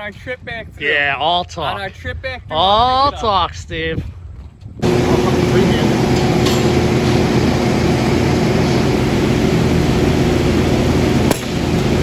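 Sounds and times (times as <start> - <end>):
ventilation fans droning: 4.8 - 12.0.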